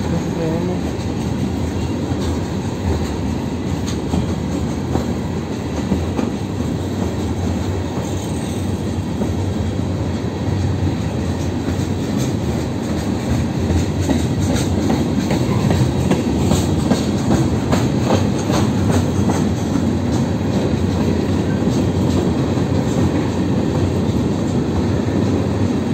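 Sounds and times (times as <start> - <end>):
train wheels rumbling on rail: 0.0 - 25.9
wheels clicking over rail joints: 0.1 - 25.4.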